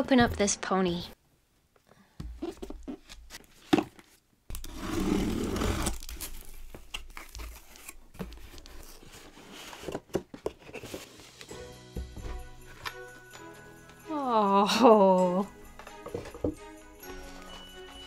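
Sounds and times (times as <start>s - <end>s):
tape ripping off cardboard: 4.5s - 8.0s
box rustling and knocking: 8.2s - 13.0s, 15.9s - 17.3s.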